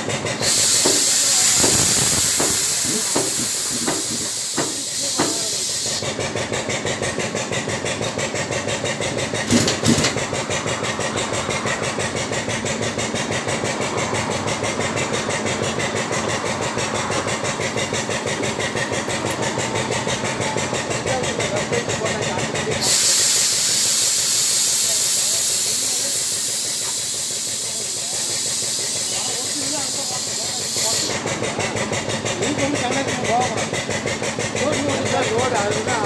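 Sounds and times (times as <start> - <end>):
hydraulic pump pulsing: 0.0 - 36.0
hissing: 0.4 - 6.0
loud clunks: 9.4 - 10.4.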